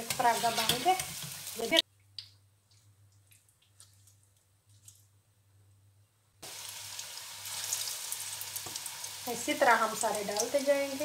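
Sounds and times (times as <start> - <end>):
oil sizzling and crackling: 0.0 - 4.2, 6.4 - 11.0.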